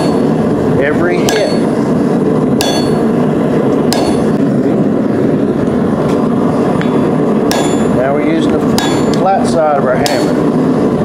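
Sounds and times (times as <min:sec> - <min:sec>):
hammer striking steel on anvil: 0:00.0 - 0:00.4, 0:01.2 - 0:01.9, 0:02.6 - 0:03.2, 0:03.9 - 0:04.5, 0:07.5 - 0:10.5
loud steady background noise: 0:00.0 - 0:11.0.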